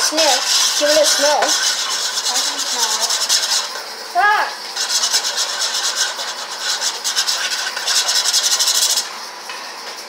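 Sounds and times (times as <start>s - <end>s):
metal fork scraping metal pan: 0.0s - 3.8s.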